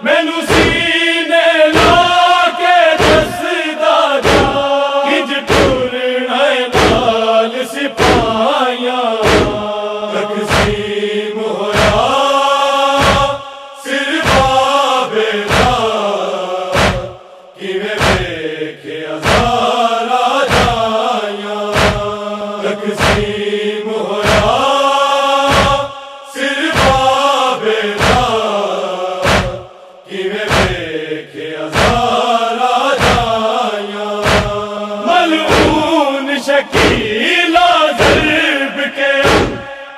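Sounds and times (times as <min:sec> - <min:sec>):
men chanting in unison: 0:00.0 - 0:39.9
chest-beating thumps: 0:00.5 - 0:00.9, 0:01.8 - 0:02.1, 0:03.0 - 0:03.3, 0:04.2 - 0:04.7, 0:05.5 - 0:05.9, 0:06.8 - 0:07.2, 0:08.0 - 0:08.4, 0:09.2 - 0:09.7, 0:10.5 - 0:10.9, 0:11.8 - 0:12.1, 0:13.0 - 0:13.5, 0:14.2 - 0:14.6, 0:15.5 - 0:15.8, 0:16.7 - 0:17.3, 0:17.9 - 0:18.4, 0:19.2 - 0:19.6, 0:20.5 - 0:20.9, 0:21.7 - 0:22.2, 0:23.0 - 0:23.4, 0:24.2 - 0:24.6, 0:25.5 - 0:26.0, 0:26.7 - 0:27.2, 0:28.0 - 0:28.4, 0:29.2 - 0:29.8, 0:30.5 - 0:30.9, 0:31.7 - 0:32.2, 0:33.0 - 0:33.4, 0:34.2 - 0:34.7, 0:35.5 - 0:35.9, 0:36.7 - 0:37.2, 0:38.0 - 0:38.4, 0:39.2 - 0:39.7.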